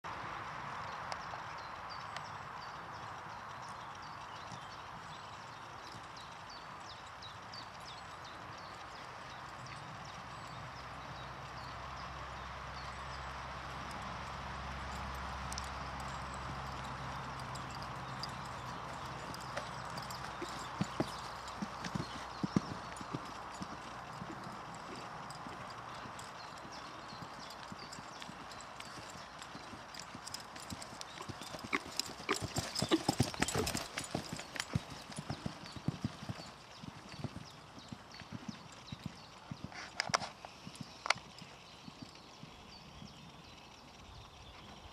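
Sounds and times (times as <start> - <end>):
horse hoofbeats on sand: 13.7 - 43.3.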